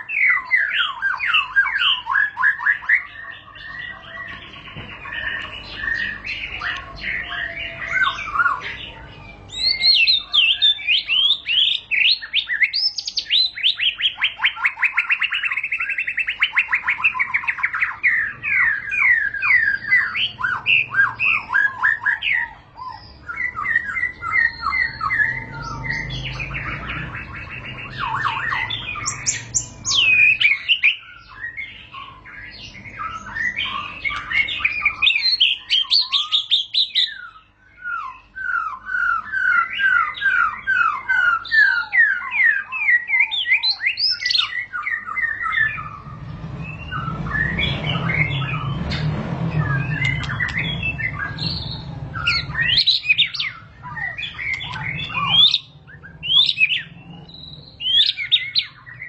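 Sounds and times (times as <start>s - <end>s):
bird singing whistles and chatter: 0.0s - 59.0s
low rumble: 45.6s - 52.8s.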